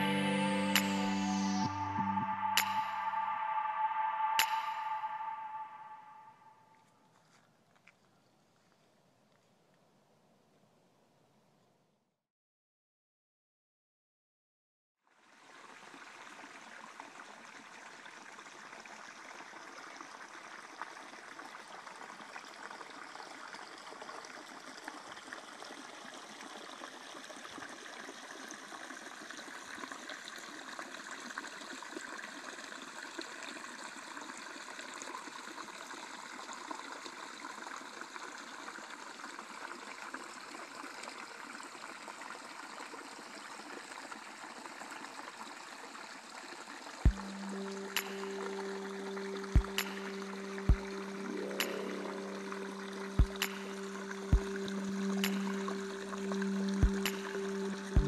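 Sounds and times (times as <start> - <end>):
creek trickling over rocks: 15.1 - 58.0.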